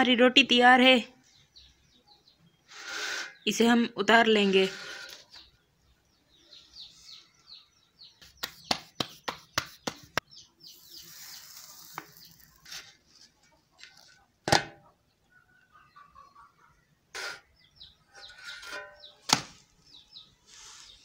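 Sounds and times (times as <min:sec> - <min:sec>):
small birds chirping: 0:00.0 - 0:21.0
hands patting dough: 0:08.2 - 0:10.2
dough hissing on hot griddle: 0:10.7 - 0:12.6.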